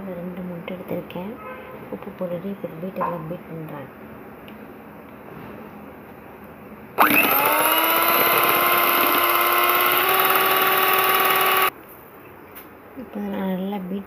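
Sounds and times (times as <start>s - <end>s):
electric hand mixer whirring: 7.0s - 11.7s.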